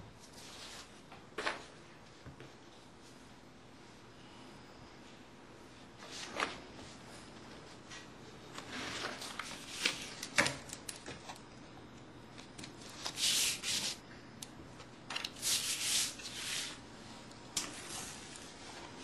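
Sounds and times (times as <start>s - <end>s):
paper rustling: 8.5s - 11.4s, 12.4s - 14.0s, 15.1s - 16.8s.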